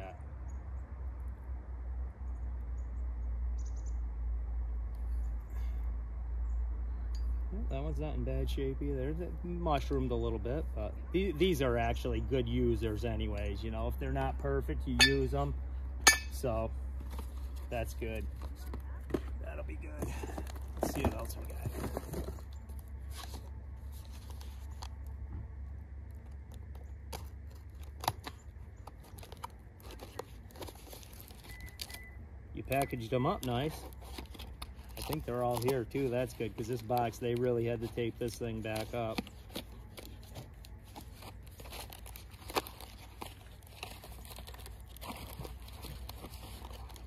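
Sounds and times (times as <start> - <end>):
paper wrapping rustling and tearing: 20.2 - 25.1, 26.6 - 32.0, 32.6 - 47.0
sharp crackles: 26.0 - 47.0.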